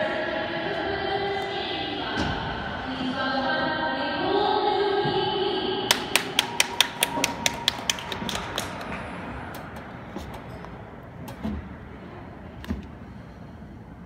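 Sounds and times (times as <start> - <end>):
person clapping: 5.9 - 9.0.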